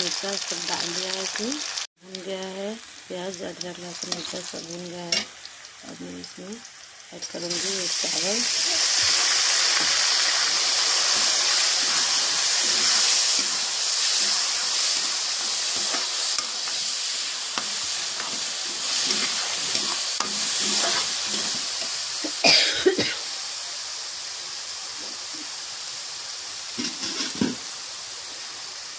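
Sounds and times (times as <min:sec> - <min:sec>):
rice and onions sizzling in oil: 0:00.0 - 0:28.9
metal spatula scraping a pan: 0:08.1 - 0:22.1, 0:26.8 - 0:27.6.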